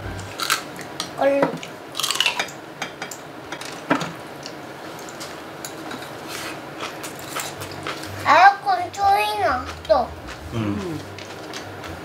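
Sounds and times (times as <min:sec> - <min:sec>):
soft eating noise: 0:03.6 - 0:12.0.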